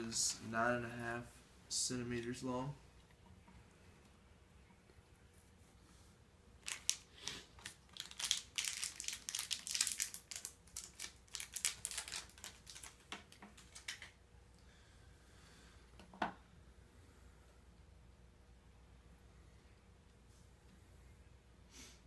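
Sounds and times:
plastic wrapper crinkling: 6.6 - 14.2.

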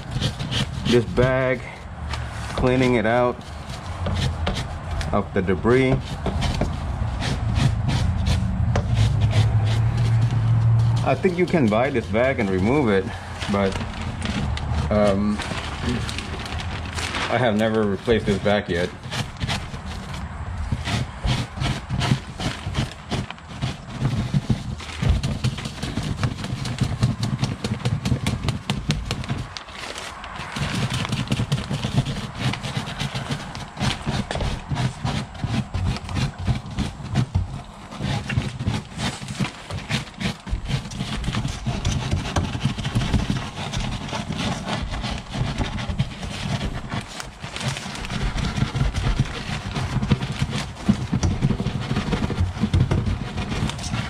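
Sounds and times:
brush scrubbing cloth filter: 0.0 - 54.0
plastic bag crinkling: 8.4 - 41.9.

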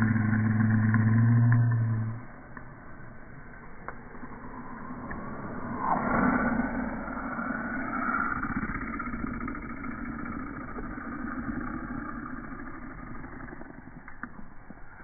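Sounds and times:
motor vehicle engine running: 0.0 - 2.3.

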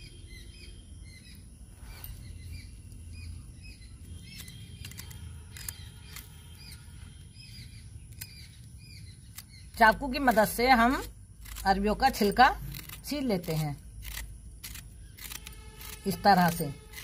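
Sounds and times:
birds chirping: 0.0 - 17.0
sharp clicks: 4.0 - 7.3, 8.0 - 17.0
knife scraping root skin: 4.2 - 7.2, 9.2 - 17.0.

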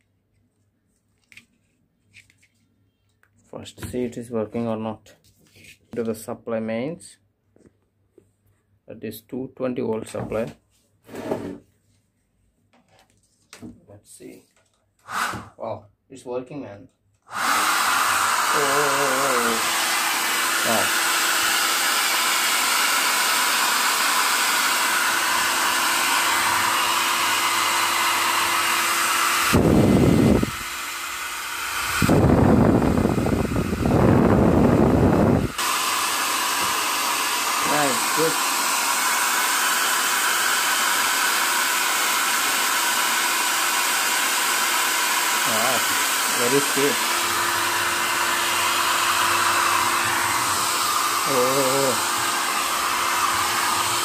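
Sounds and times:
hair dryer air rushing: 15.0 - 15.6, 17.3 - 54.0.

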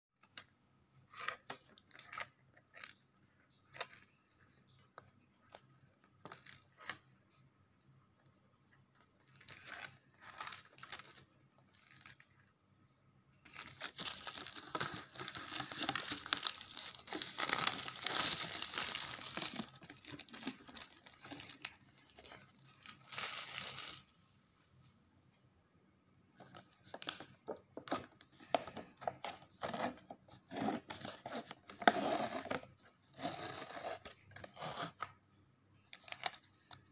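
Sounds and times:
plastic tearing and crumpling: 13.5 - 24.0
plastic packaging crinkling: 13.5 - 24.1.

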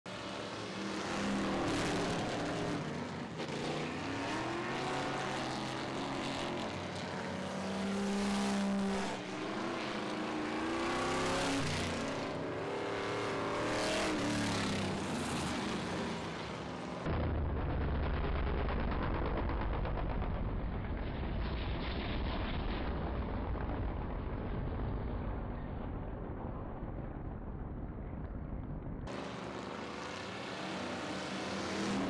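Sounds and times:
race car engines revving: 0.1 - 17.1, 29.1 - 32.0.

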